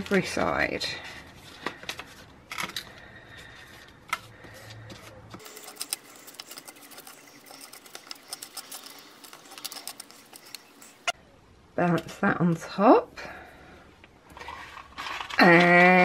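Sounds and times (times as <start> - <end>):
sugar cube scratching in ash: 5.4 - 11.2.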